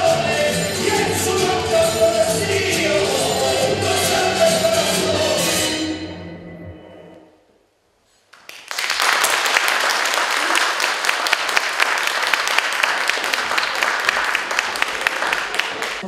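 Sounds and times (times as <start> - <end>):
music: 0.0 - 7.5
audience clapping: 8.3 - 16.0.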